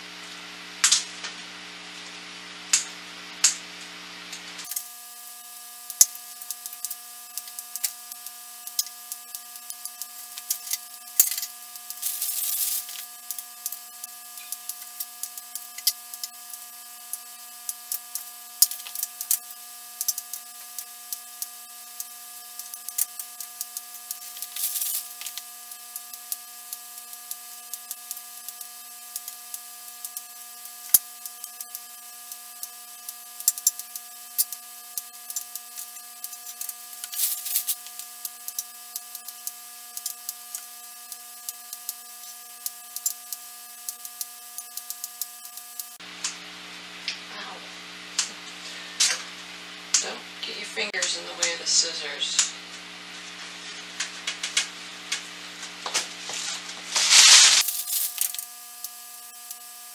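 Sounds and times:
rustling: 0:56.2 - 0:58.2.

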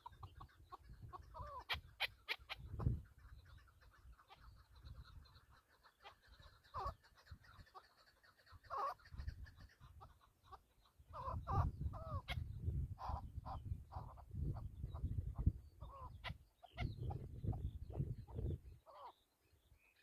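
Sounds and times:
wind rumble on microphone: 0:00.0 - 0:05.4, 0:09.0 - 0:10.1, 0:11.1 - 0:18.9
partridge clucking calls: 0:00.0 - 0:20.0.

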